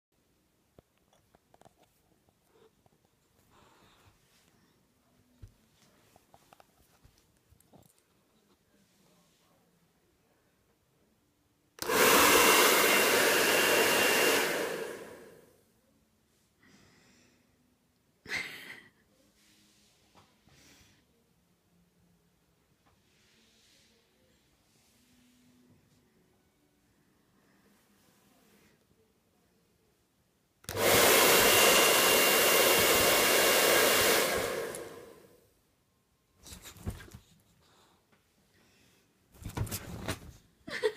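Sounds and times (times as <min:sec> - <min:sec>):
hair dryer switch click: 0:11.8 - 0:12.4, 0:30.7 - 0:35.0
hair dryer blowing: 0:11.8 - 0:15.5, 0:30.7 - 0:35.3.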